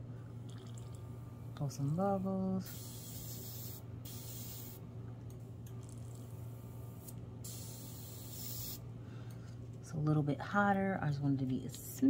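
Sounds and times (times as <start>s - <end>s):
steady low hum: 0.0s - 12.0s
airbrush spraying hiss: 2.7s - 4.8s, 7.0s - 8.8s.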